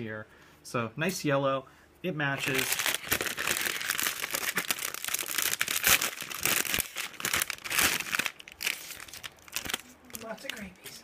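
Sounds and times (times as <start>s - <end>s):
plastic bags crinkling: 2.4s - 11.0s.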